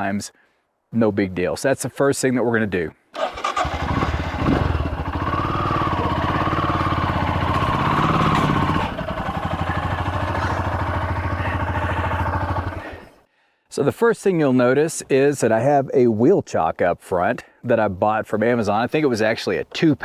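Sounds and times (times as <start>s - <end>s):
motorcycle engine running: 3.4s - 13.1s.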